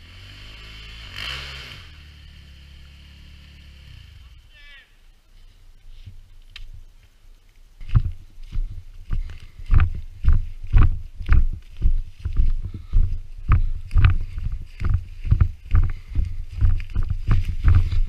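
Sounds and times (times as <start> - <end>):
leaves rustling: 2.3 - 18.0
footsteps on dry leaves: 7.5 - 18.0.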